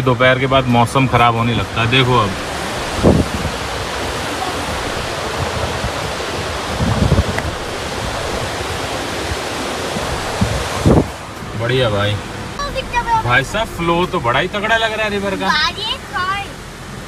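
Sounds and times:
river rushing: 0.0s - 17.0s
low thumps: 1.2s - 14.6s.

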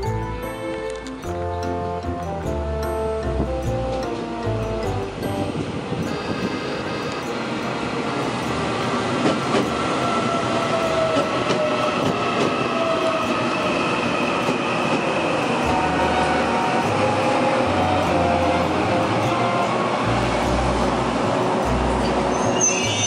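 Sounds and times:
train wheels on rails: 5.2s - 23.0s.

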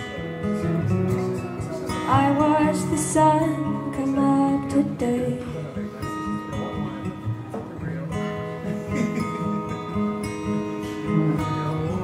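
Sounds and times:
strummed acoustic guitar: 0.0s - 12.0s
woman singing: 2.1s - 5.6s.

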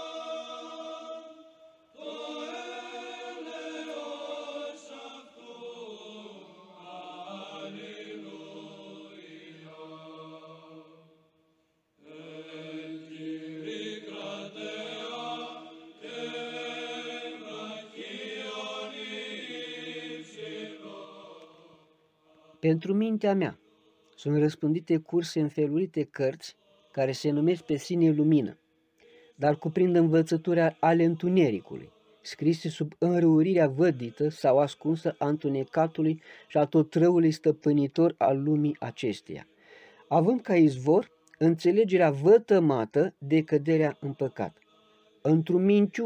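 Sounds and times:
voices chanting: 0.0s - 11.1s, 12.0s - 24.0s.

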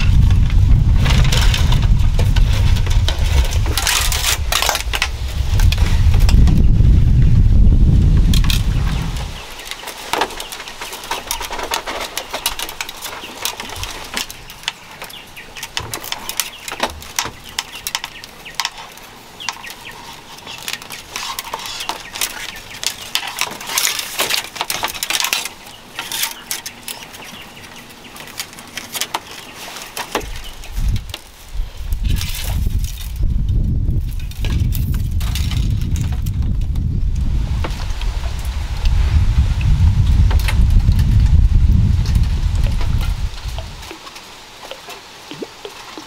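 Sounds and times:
low rumble: 0.0s - 9.4s, 31.9s - 43.8s
bamboo strips rustling and clicking: 0.0s - 46.0s.

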